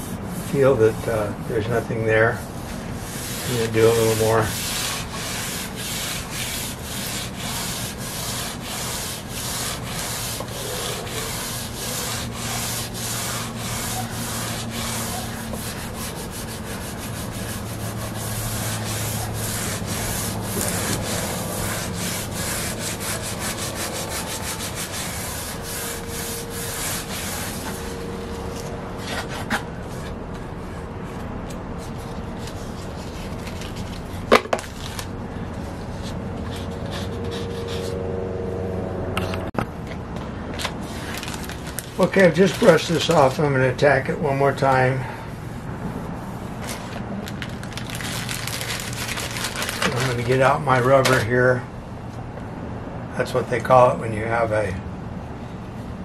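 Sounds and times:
sandpaper rubbing on wood: 0.0 - 30.1, 35.9 - 38.0, 41.9 - 43.4, 47.9 - 51.2.

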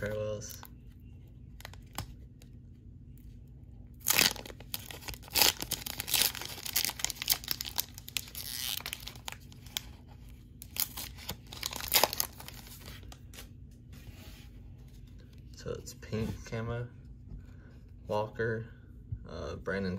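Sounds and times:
foil wrapper tearing: 4.0 - 9.8, 10.6 - 12.8
wrapper crackling: 4.0 - 10.0, 10.6 - 13.4.

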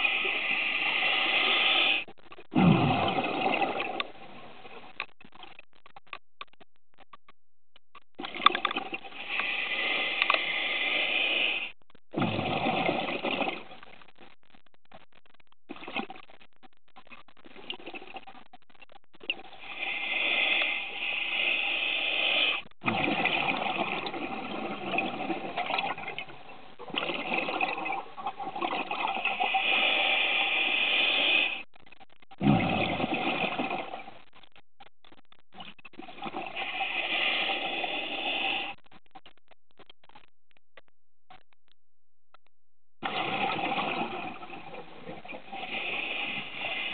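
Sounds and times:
diver breathing through regulator: 0.0 - 2.1, 9.1 - 11.7, 19.6 - 22.6, 29.3 - 31.6, 36.4 - 38.8, 45.4 - 46.9
air bubbling: 0.0 - 5.0, 8.2 - 13.8, 19.2 - 31.6, 32.3 - 34.2, 35.5 - 38.8, 43.0 - 46.9.

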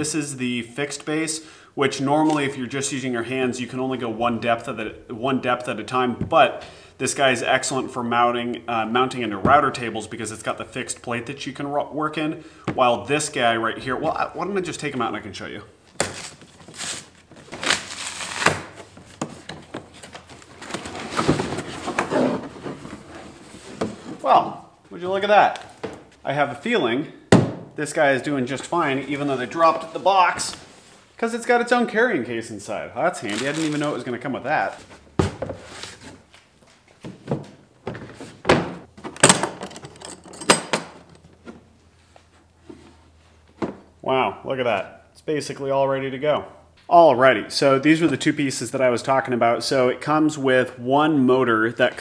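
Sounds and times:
packing paper rustling: 16.0 - 22.0, 33.2 - 34.1
cardboard boxes scraping and knocking: 18.8 - 24.2
plastic case thunks on wood: 27.3 - 27.7.

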